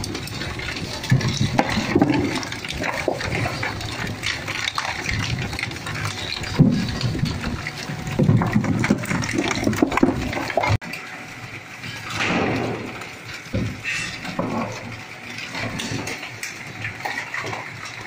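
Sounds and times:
shredder crunching plastic: 0.0s - 10.9s.

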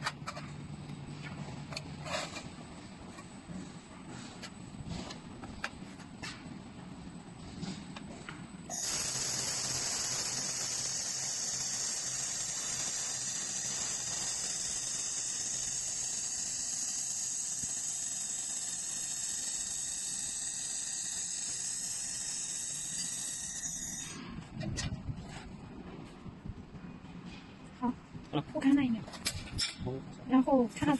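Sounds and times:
laser welder hiss and sizzle: 8.7s - 24.2s.

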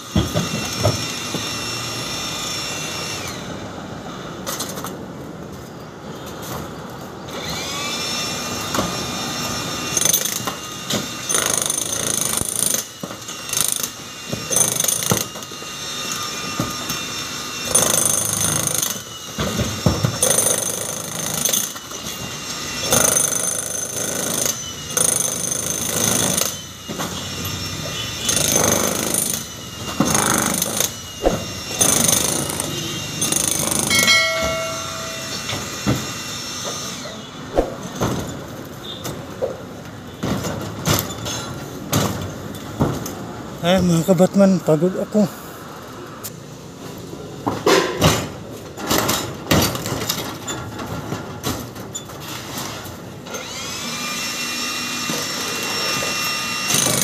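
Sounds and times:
jackhammer breaking concrete: 9.9s - 15.5s, 17.6s - 22.0s, 22.8s - 27.2s, 28.2s - 34.7s, 53.3s - 57.0s.

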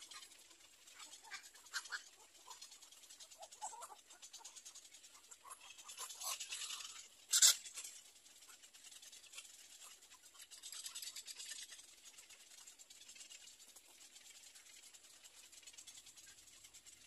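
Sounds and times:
nestlings ticking chatter calls: 1.0s - 8.0s
sharp bird rasp: 5.4s - 7.7s.

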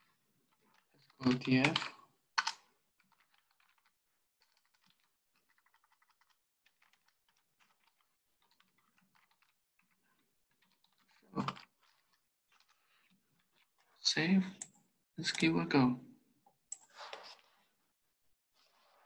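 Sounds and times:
keyboard typing: 1.2s - 9.9s.

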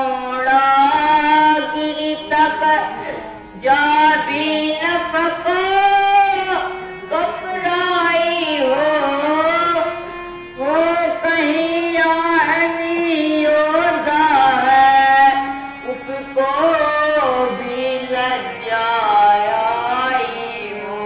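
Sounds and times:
person singing ornamented lament: 0.0s - 21.0s.

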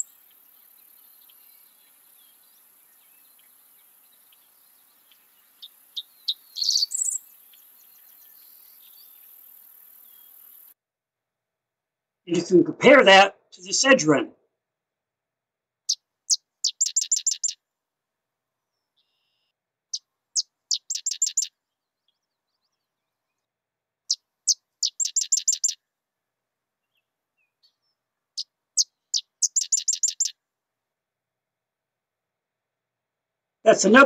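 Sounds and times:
wren singing: 0.0s - 10.7s, 15.9s - 17.6s, 18.8s - 23.2s, 24.1s - 25.8s, 26.8s - 30.4s.

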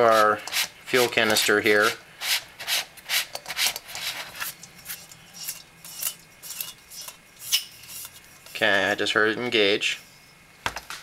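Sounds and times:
metallic clicks and scrapes: 3.2s - 8.7s.

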